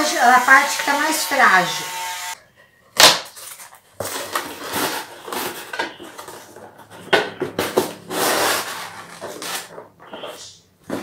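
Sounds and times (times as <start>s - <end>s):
cardboard being cut and torn: 3.0s - 5.7s, 7.6s - 9.7s.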